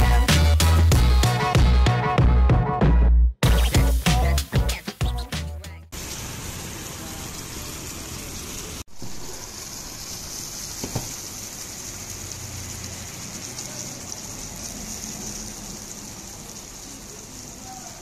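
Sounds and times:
meat sizzling on a hot plate: 0:05.9 - 0:18.0.

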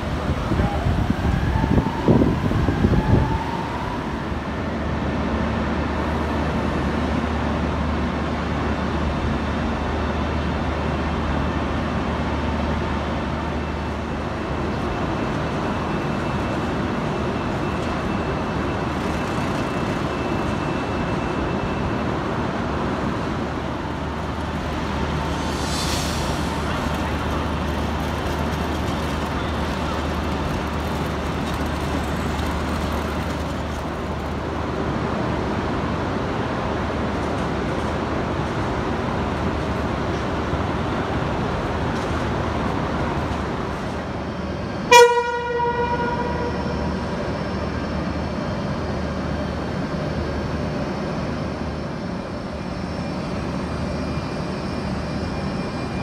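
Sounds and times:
broad even noise: 0:23.0 - 0:31.5
short hiss: 0:25.2 - 0:27.3.

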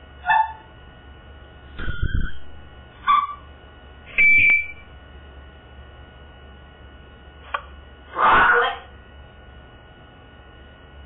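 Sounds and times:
parrot whistled beep: 0:04.1 - 0:04.8.

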